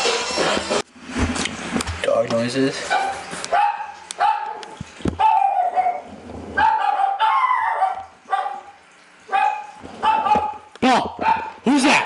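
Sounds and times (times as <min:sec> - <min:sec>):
dog barks through phone speaker: 0:02.9 - 0:08.7, 0:09.3 - 0:11.6.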